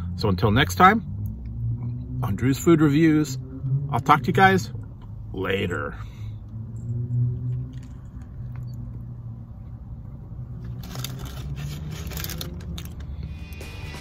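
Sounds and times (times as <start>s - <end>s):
crinkling and rustling: 10.6s - 13.2s.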